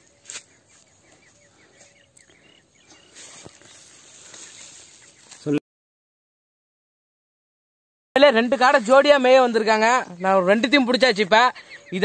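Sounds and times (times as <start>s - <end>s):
dry leaves rustling: 0.0s - 2.0s, 2.9s - 5.6s
faint high chirping: 0.0s - 5.6s, 11.5s - 12.0s.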